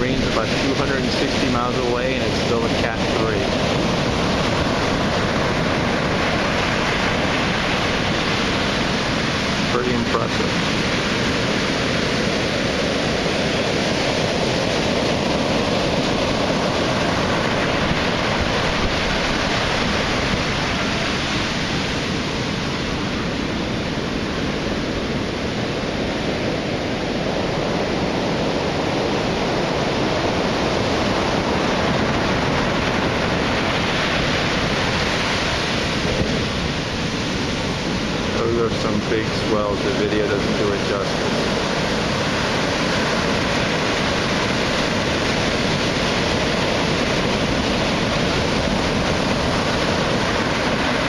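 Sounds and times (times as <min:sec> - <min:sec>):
heavy surf breaking: 0:00.0 - 0:51.0.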